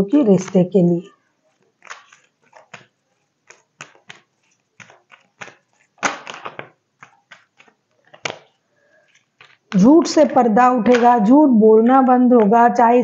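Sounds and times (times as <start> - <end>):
cards being shuffled: 1.5 - 9.9
sharp card snap: 3.5 - 8.4.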